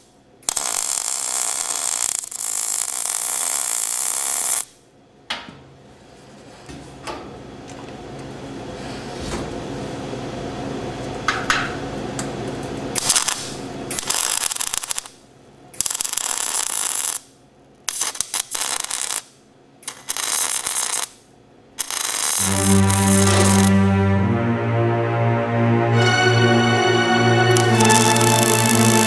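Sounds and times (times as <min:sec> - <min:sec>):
welder arc crackling: 0:00.5 - 0:04.6, 0:13.0 - 0:15.2, 0:15.8 - 0:17.3, 0:17.9 - 0:21.2, 0:21.8 - 0:23.7.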